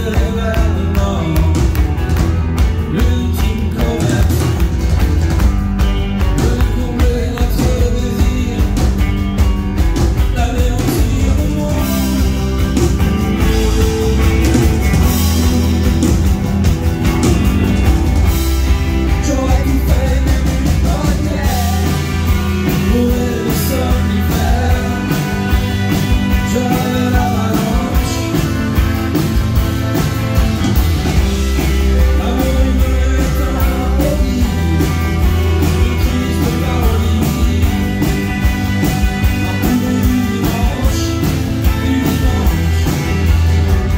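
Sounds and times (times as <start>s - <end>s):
man singing: 0.0s - 2.0s, 2.6s - 4.8s, 6.1s - 9.4s, 10.1s - 16.5s, 18.6s - 28.9s, 31.3s - 43.9s
drums: 0.0s - 43.9s
acoustic guitar strumming: 11.9s - 20.2s.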